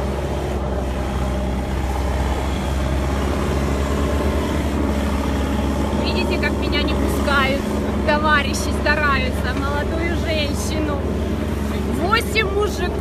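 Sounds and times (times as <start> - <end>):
backhoe engine droning: 0.0 - 13.0.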